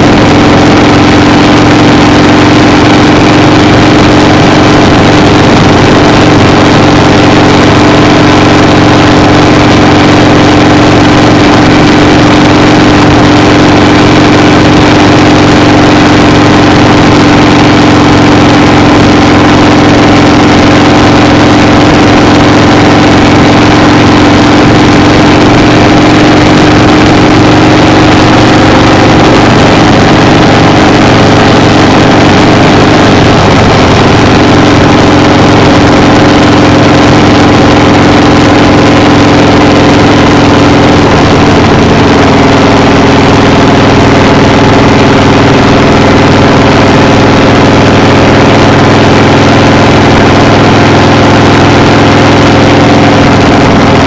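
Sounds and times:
loud engine drone: 0.0 - 54.0.

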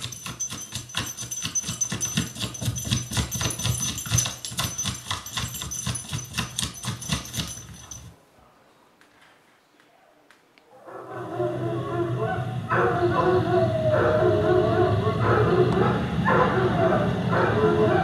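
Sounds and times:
dogs barking: 12.1 - 18.0.

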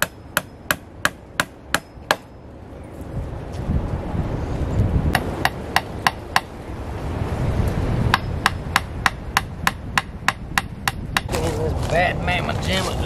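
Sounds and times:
hammer striking: 0.0 - 2.4, 8.1 - 11.3
wind rumble on microphone: 2.5 - 13.0.

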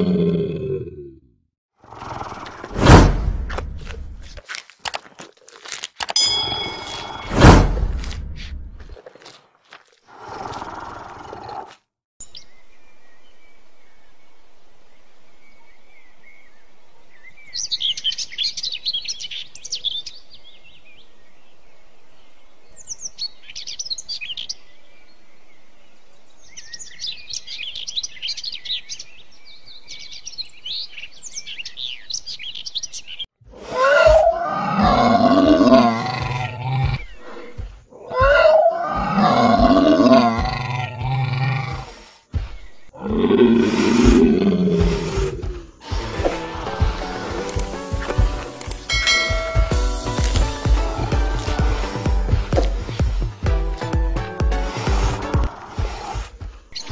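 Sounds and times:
dinosaur roars: 0.0 - 2.8, 33.5 - 42.0, 43.0 - 47.7
birds chirping: 10.3 - 33.3, 34.0 - 56.9.

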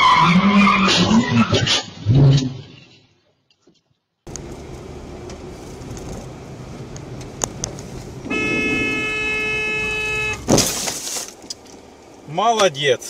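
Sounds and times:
car road and engine rumble: 4.3 - 13.0
car horn held: 8.3 - 10.5
loud car crash: 10.4 - 11.4.

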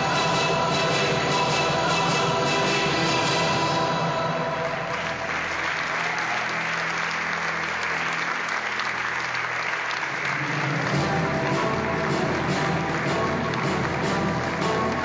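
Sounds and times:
faint music: 0.0 - 15.0
audience applauding: 4.5 - 15.0.

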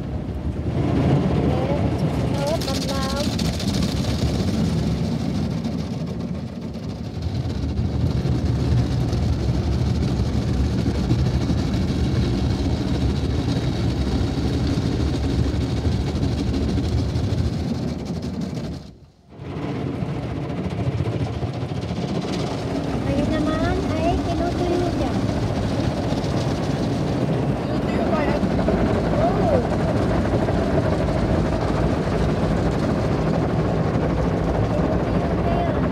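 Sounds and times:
muffled car wash brushes and spray: 0.0 - 28.4.

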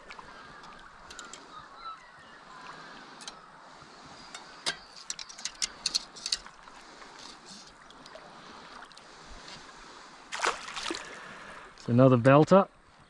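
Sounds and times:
soft wash of river: 0.0 - 13.0
fish splashing at surface: 10.3 - 11.3.

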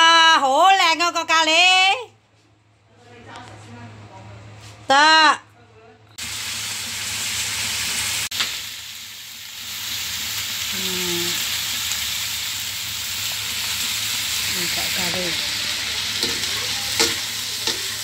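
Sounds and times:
food sizzling in a wok: 6.2 - 18.0.

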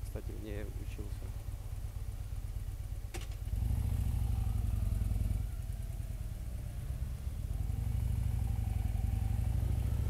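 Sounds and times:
motorcycle engine running: 0.3 - 10.0.

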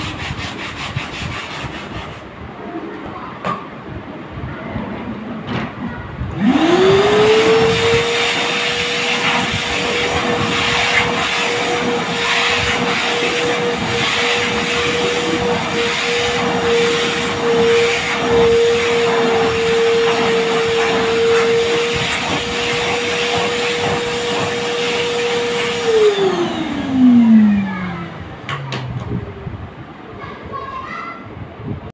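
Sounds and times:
suction rushing through hose: 6.3 - 28.1
vacuum cleaner motor whine: 6.3 - 29.4.

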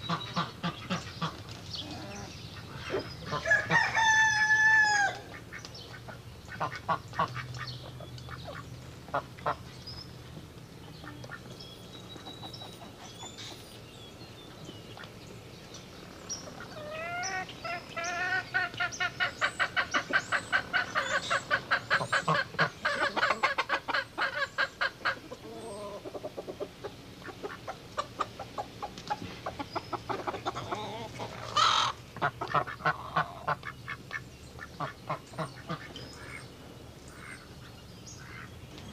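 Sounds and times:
barnyard fowl calling: 0.0 - 9.7, 16.5 - 36.5, 37.1 - 38.6.

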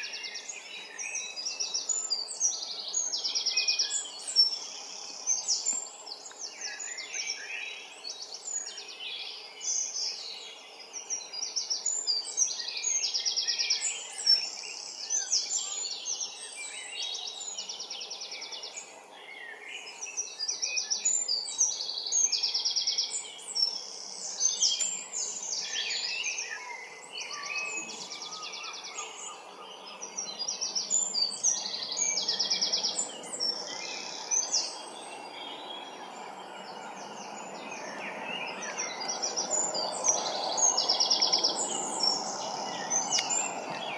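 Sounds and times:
songbirds singing: 0.0 - 43.9
distant road traffic rumble: 28.0 - 43.9.

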